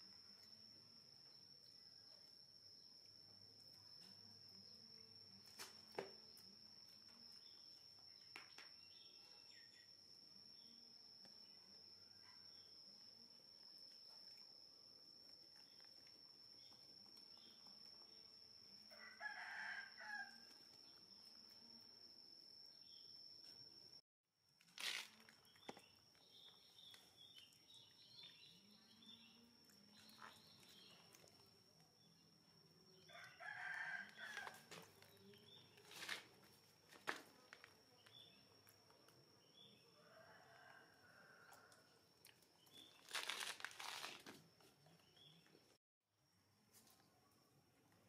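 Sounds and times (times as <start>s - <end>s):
faint rooster crowing: 18.8s - 20.8s, 33.0s - 35.4s, 39.8s - 42.1s.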